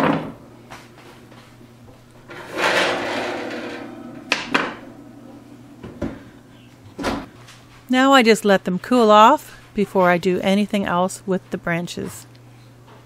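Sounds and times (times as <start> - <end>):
oven rack clatter: 2.2 - 7.3
metal scrape: 2.3 - 5.8
oven door swinging shut: 2.3 - 6.3, 6.9 - 7.3
sharp knocks: 2.6 - 4.9.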